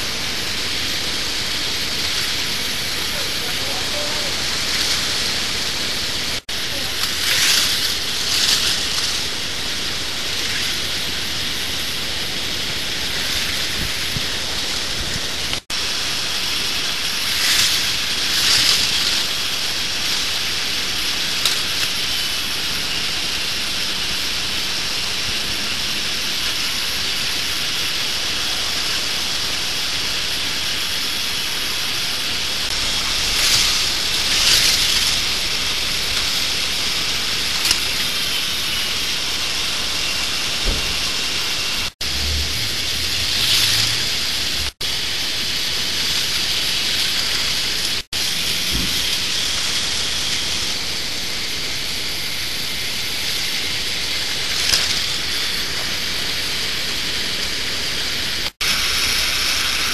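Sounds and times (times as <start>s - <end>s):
toy roller coaster rattling: 0.6s - 11.2s, 15.5s - 25.0s, 32.4s - 40.7s, 41.8s - 44.8s, 49.0s - 58.1s
train rushing past: 32.5s - 45.0s.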